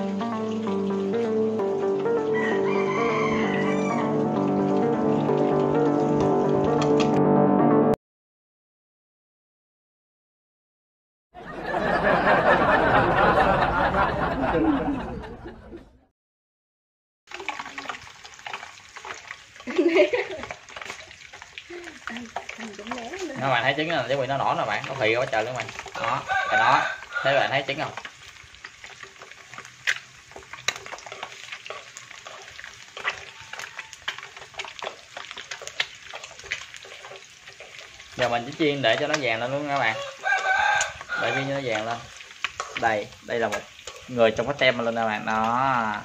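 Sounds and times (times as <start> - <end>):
eggs sizzling in hot oil: 0.0 - 7.1, 17.3 - 46.0
oil popping and crackling: 0.0 - 7.2, 17.3 - 46.0
burst of laughing voices: 11.4 - 15.9, 19.6 - 20.6.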